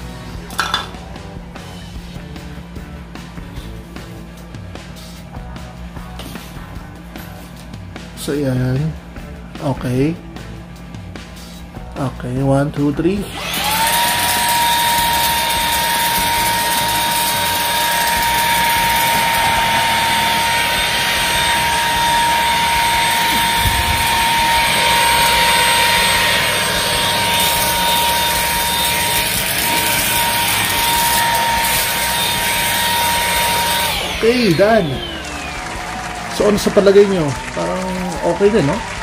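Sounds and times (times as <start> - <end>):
cordless vacuum cleaner running: 13.2 - 39.0.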